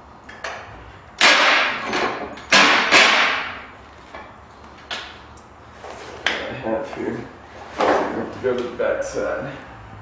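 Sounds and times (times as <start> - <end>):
sharp knocks on metal: 1.2 - 3.7.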